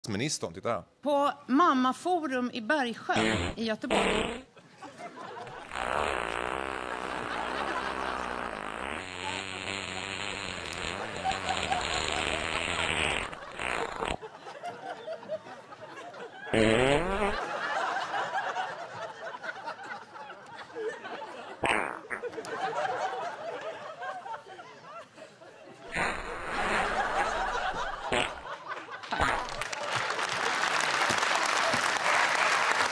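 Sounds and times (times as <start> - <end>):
crowd laughing and murmuring: 7.0 - 8.6, 14.2 - 16.5, 17.4 - 21.6, 22.2 - 25.9, 26.9 - 32.8
audience applause: 28.7 - 32.9.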